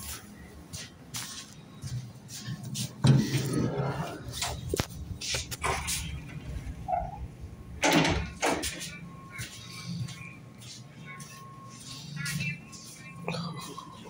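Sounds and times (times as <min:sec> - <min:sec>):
low hum inside carriage: 0:00.0 - 0:14.0
train door shutting: 0:05.4 - 0:09.0.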